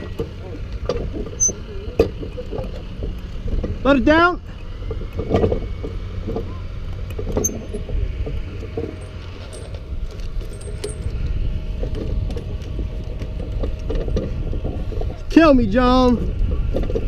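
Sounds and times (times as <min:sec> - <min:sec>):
wind rumbling on microphone: 0:04.6 - 0:17.0
clinks and knocks of metal hardware: 0:08.8 - 0:11.2.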